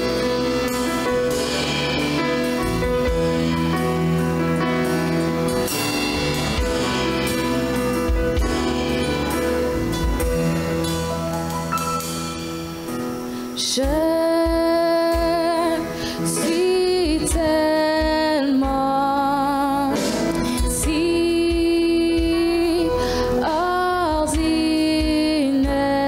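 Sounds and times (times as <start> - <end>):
soft instrumental accompaniment: 0.0 - 26.0
woman singing with vibrato: 13.6 - 26.0.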